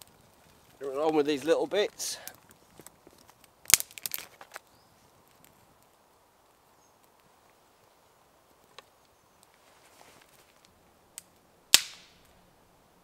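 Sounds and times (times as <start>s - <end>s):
dry twigs cracking and clattering: 0.0s - 6.0s, 8.6s - 12.3s
small flames hissing and crackling: 0.0s - 13.0s.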